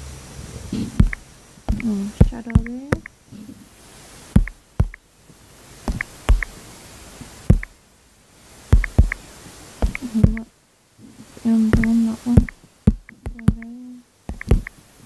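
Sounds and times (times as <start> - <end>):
fingertip taps on touchscreen: 1.0 - 3.2, 4.4 - 5.0, 5.9 - 6.6, 7.5 - 7.7, 8.7 - 9.2, 9.8 - 10.5, 11.8 - 13.7, 14.3 - 14.7.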